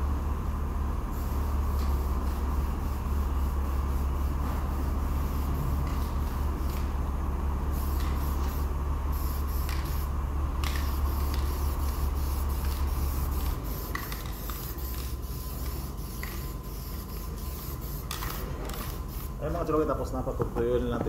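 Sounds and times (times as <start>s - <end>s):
steady low hum: 0.0s - 21.0s
aerosol can hissing: 7.7s - 19.4s.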